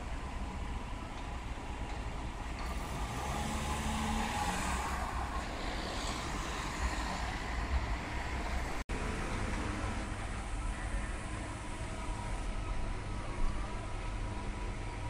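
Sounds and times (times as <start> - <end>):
low rumble of street traffic: 0.0 - 15.0
car driving past: 2.6 - 10.0.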